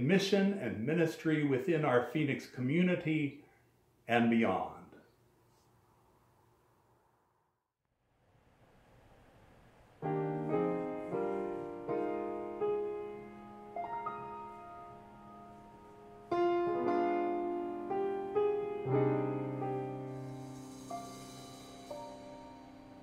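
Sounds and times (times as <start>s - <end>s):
grand piano playing hymn: 10.0s - 23.0s.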